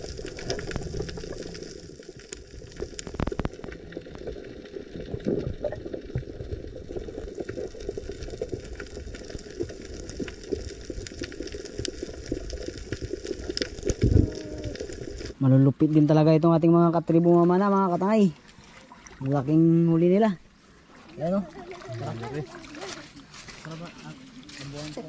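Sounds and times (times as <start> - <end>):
crackling clicks: 0.0 - 16.1
water bubbling and sloshing: 0.0 - 25.0.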